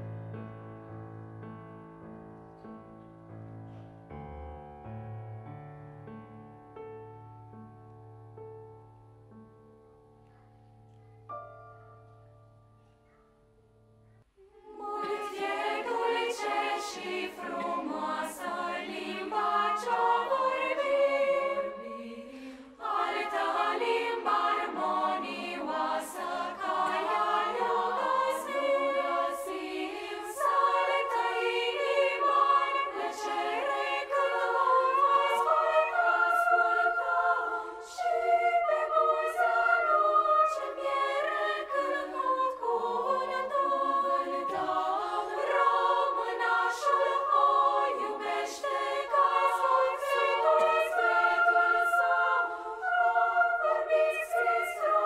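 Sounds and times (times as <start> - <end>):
children's choir singing: 14.4 - 55.0.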